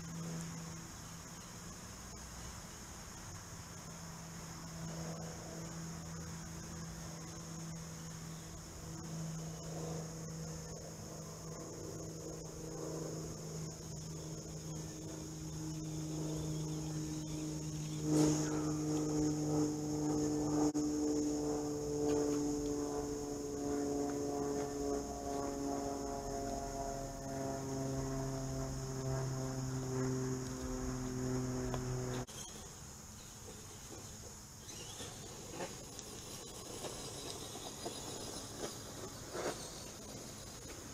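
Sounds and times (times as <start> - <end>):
crickets chirping: 0.0 - 40.9
low hum: 0.0 - 40.9
steady pitched drone: 3.7 - 33.0.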